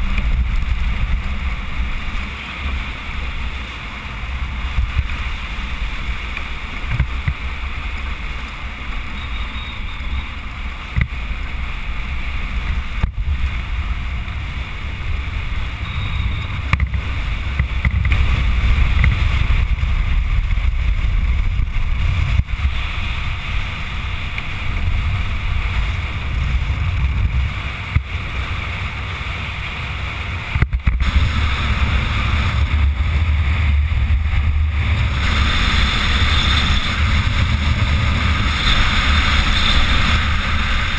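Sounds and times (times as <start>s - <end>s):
wheels rumbling over ground: 0.0s - 40.9s
wind buffeting microphone: 9.8s - 40.9s.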